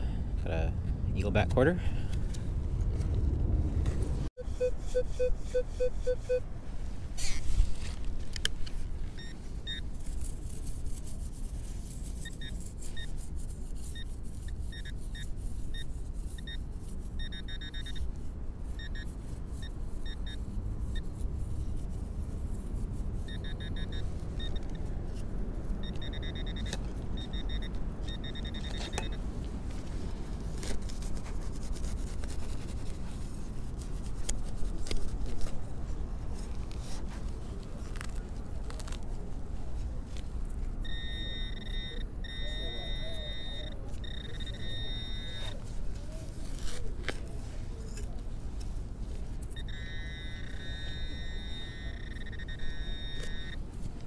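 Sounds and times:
metal detector pinpointer beeping: 4.4 - 6.4, 13.9 - 16.6, 17.2 - 18.1, 18.7 - 21.0, 23.3 - 24.8, 25.8 - 29.2, 40.8 - 45.6, 49.4 - 53.6
scraping through soil and grass: 6.6 - 25.8, 28.6 - 40.8, 43.9 - 50.0.

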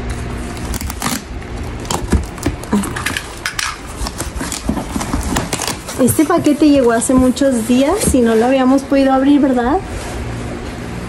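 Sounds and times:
packing tape tearing: 0.0 - 8.2
utility knife cutting cardboard: 3.9 - 8.4.

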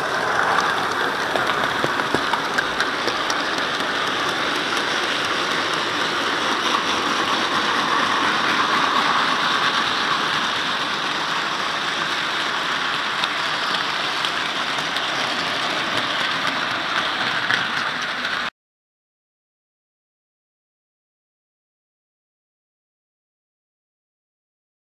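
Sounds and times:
model train running on track: 0.0 - 18.5.

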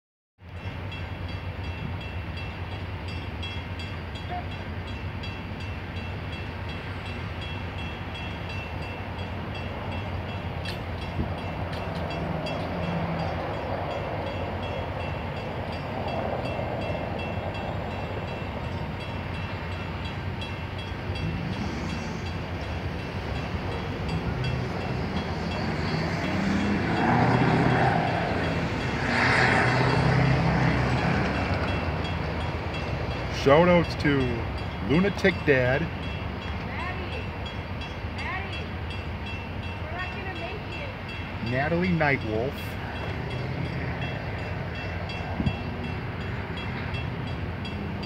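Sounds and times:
idling vehicle engines: 29.8 - 48.0.

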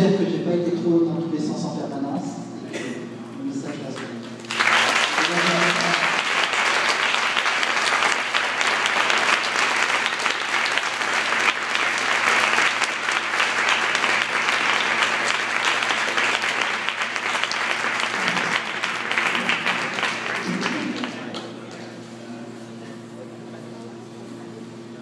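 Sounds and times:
audience applauding: 4.0 - 21.8.

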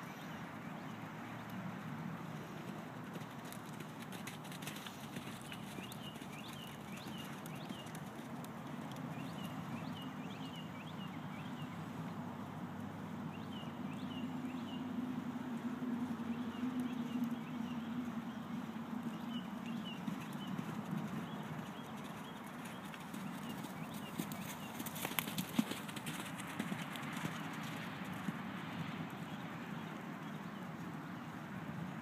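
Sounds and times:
horse hoofbeats on dirt: 2.6 - 10.0, 19.1 - 29.4.

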